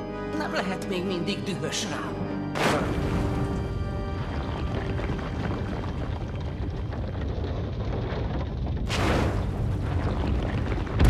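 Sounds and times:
low underwater rumble: 2.9s - 11.0s.

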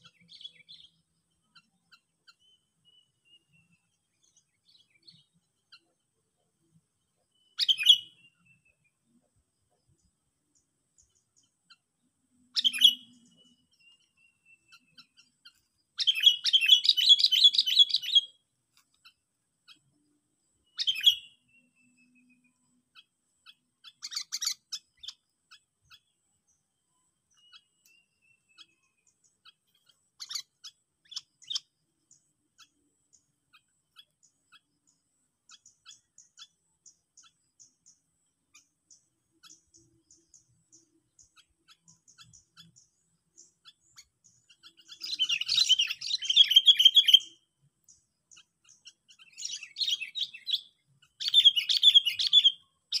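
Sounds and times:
bulbul calling: 7.4s - 8.7s, 11.0s - 18.4s, 20.6s - 26.1s, 27.3s - 53.0s
fast bird chattering: 23.9s - 25.2s.

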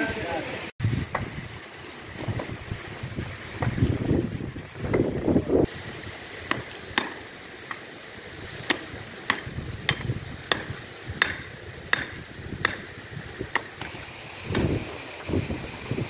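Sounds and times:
pick striking stony soil: 8.6s - 12.9s.

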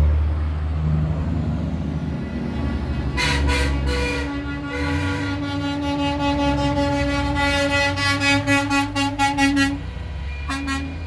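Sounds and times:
diesel engine rumble: 0.0s - 11.0s
truck air horn blast: 3.1s - 11.0s.

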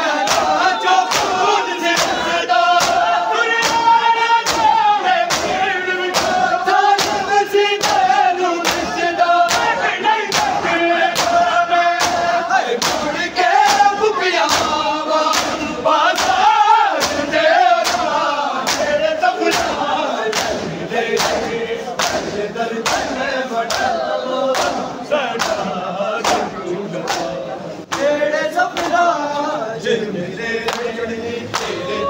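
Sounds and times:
crowd of men chanting: 0.0s - 32.0s
hands beating chests: 0.2s - 11.4s, 12.0s - 18.1s.

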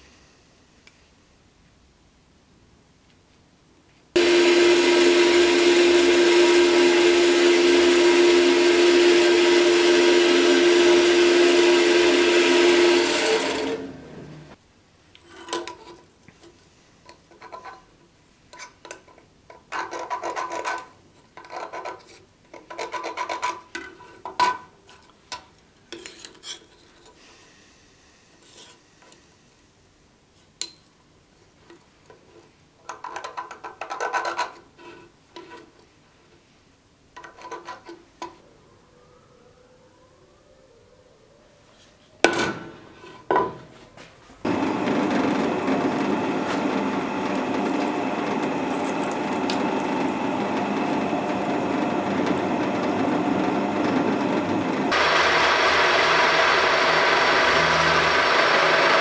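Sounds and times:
power tool running: 4.2s - 14.6s, 44.5s - 59.0s
scraping on steel block: 25.9s - 27.2s.

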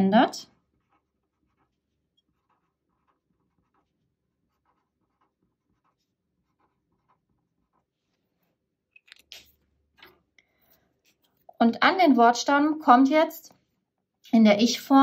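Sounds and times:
pen scratching on paper: 0.0s - 8.7s.

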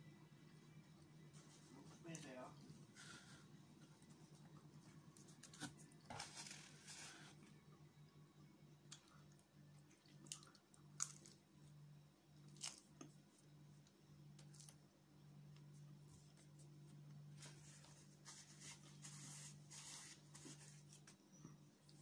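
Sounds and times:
paper napkin rustling: 17.4s - 21.0s.

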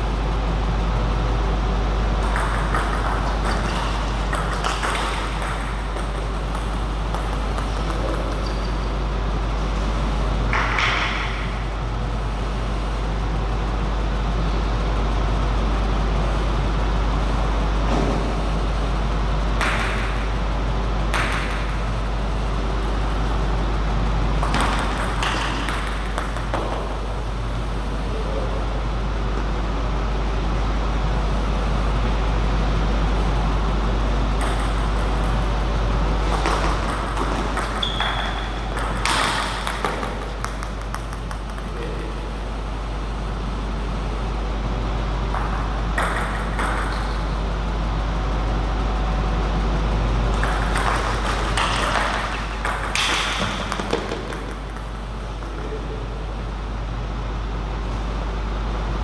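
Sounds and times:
steady low hum: 0.0s - 59.0s
ball bouncing on table: 2.2s - 8.9s, 10.5s - 11.6s, 19.6s - 20.2s, 21.1s - 21.8s, 24.4s - 27.0s, 34.4s - 35.3s, 36.3s - 42.1s, 45.3s - 47.3s, 50.3s - 55.8s
table tennis ball hitting rackets: 2.2s - 9.1s, 10.5s - 11.7s, 19.6s - 20.4s, 21.1s - 22.0s, 24.4s - 27.2s, 34.4s - 35.6s, 36.2s - 42.3s, 45.3s - 47.4s, 50.3s - 55.8s.

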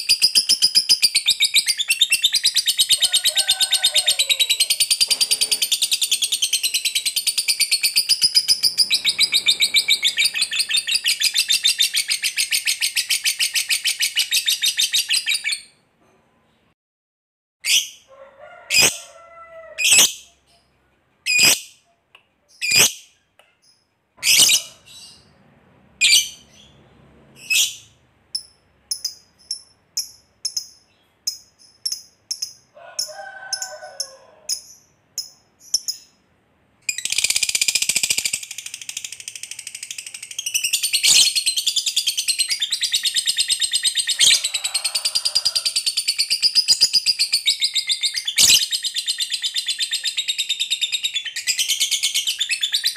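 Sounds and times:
bird chattering trill: 4.4s - 15.3s.

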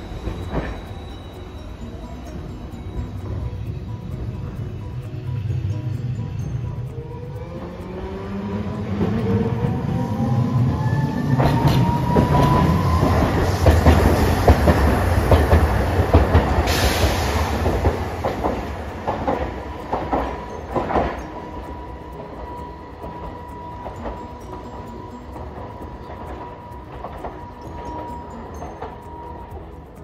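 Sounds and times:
tram motor whine: 0.0s - 30.0s
tram wheels rumbling: 0.0s - 30.0s
wheels clacking over rail joints: 8.0s - 29.4s.

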